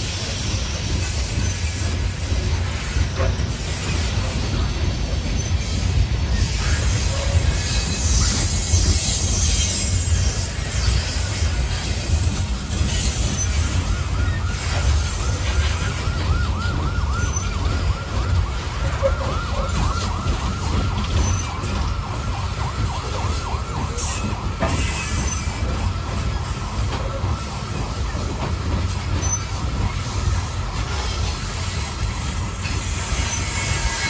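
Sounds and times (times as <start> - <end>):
freight train rumbling past: 0.0 - 34.0
yelping siren: 13.2 - 33.0.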